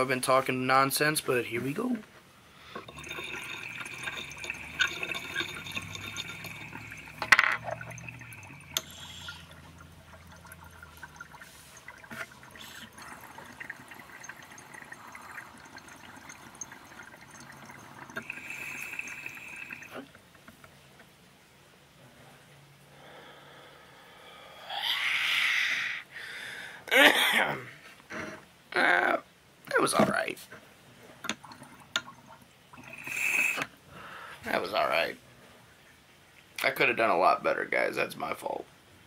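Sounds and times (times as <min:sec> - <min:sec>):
water bubbling in a pipe: 0:02.8 - 0:20.2, 0:31.3 - 0:33.7.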